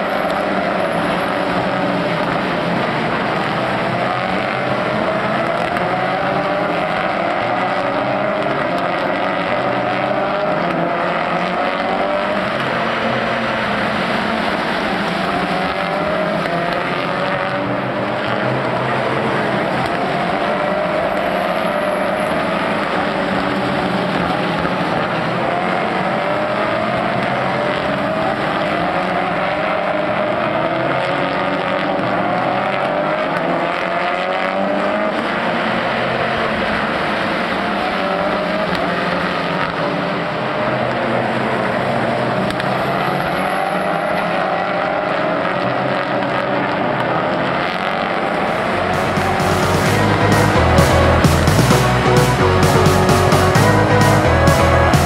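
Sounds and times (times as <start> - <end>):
race car engines accelerating: 0.0 - 55.0
music: 48.8 - 55.0.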